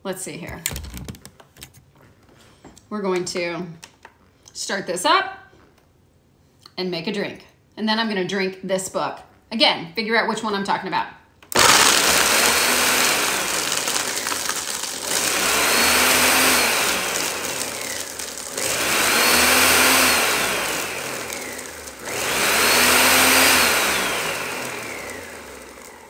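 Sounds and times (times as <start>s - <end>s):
blender motor straining on ice: 11.5s - 26.0s.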